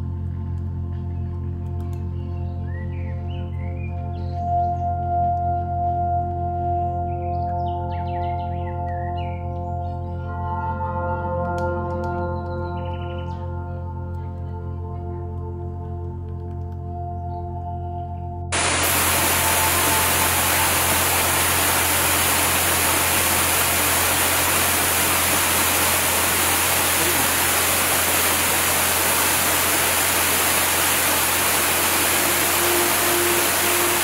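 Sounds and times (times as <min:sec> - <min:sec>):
soft ambient music: 0:00.0 - 0:34.0
low hum: 0:18.6 - 0:34.0
steady rushing noise: 0:18.6 - 0:34.0.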